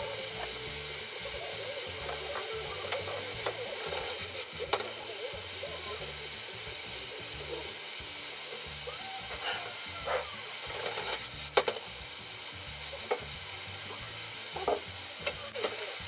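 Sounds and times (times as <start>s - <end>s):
noodles sizzling in a frying pan: 0.0s - 16.0s
chopsticks clicking against a pan: 2.0s - 5.1s, 10.6s - 11.9s, 13.0s - 13.3s.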